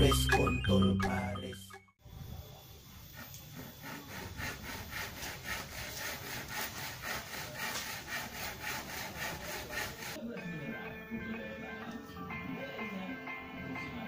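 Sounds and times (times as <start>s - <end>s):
rhythmic scraping: 3.0s - 10.2s.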